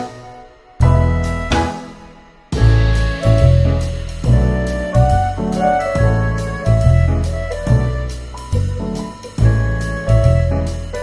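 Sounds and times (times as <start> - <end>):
piano background music: 0.0 - 11.0
steady bass line: 0.0 - 11.0.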